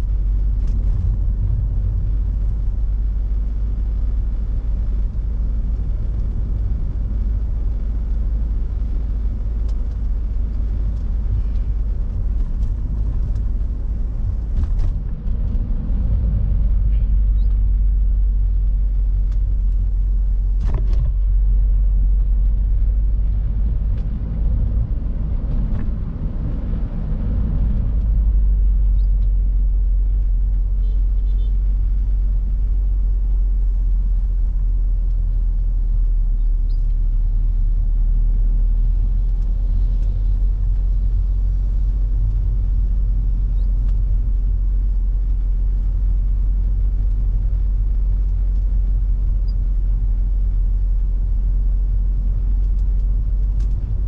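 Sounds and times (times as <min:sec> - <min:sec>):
car engine rumble: 0:00.0 - 0:54.0
road noise: 0:00.0 - 0:54.0.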